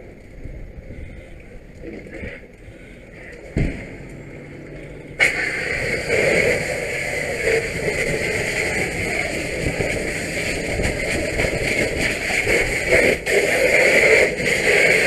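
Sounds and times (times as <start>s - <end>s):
thump: 3.6s - 3.9s
fire hose water rushing: 5.2s - 15.0s.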